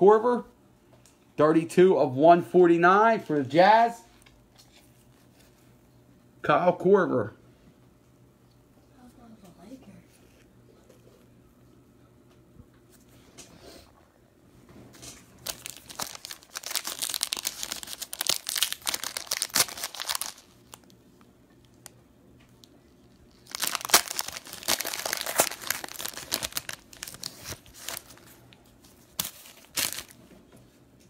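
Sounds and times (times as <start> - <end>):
card wrappers tearing and crinkling: 15.3 - 20.9, 23.2 - 30.2.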